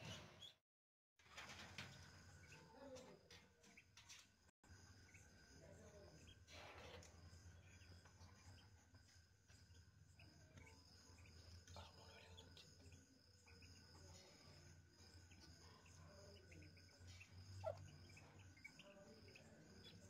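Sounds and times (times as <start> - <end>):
ducklings peeping: 10.6 - 20.0.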